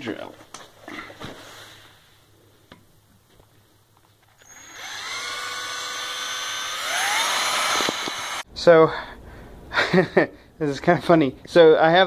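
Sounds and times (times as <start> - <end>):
power drill whining: 4.3 - 8.4.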